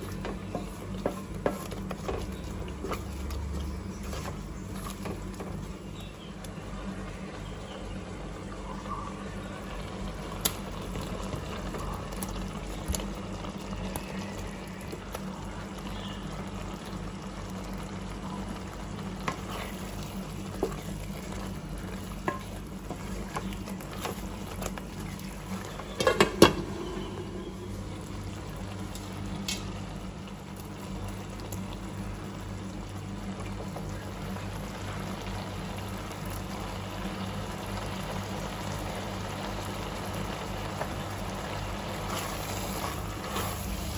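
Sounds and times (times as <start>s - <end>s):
curry stirring clatter: 0.0s - 5.7s, 19.2s - 27.5s
gravy simmering and bubbling: 0.0s - 43.9s
low hum: 1.7s - 36.8s.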